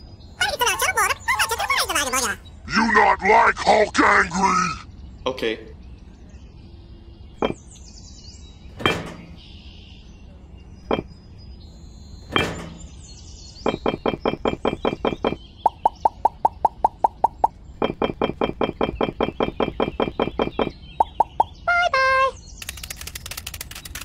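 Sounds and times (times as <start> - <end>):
small bricks clicking on a pile: 22.6 - 24.0.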